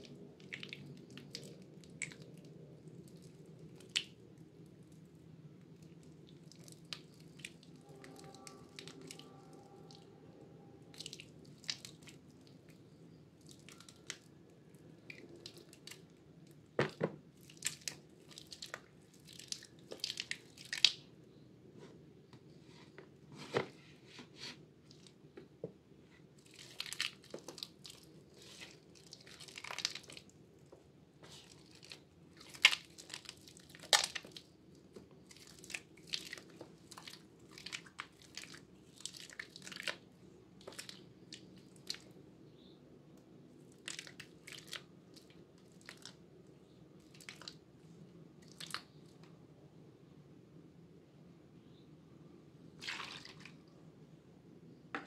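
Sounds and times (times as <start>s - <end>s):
wet soap squelching: 0.0s - 4.2s, 5.7s - 10.1s, 10.9s - 12.8s, 13.4s - 14.3s, 14.9s - 16.1s, 17.3s - 21.0s, 26.3s - 40.0s, 40.6s - 42.2s, 43.6s - 46.2s, 47.0s - 47.6s, 48.4s - 49.1s, 52.8s - 53.7s.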